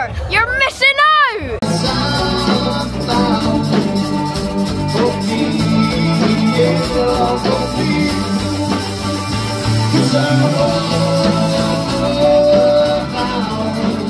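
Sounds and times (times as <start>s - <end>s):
live rock band playing: 1.6s - 14.0s.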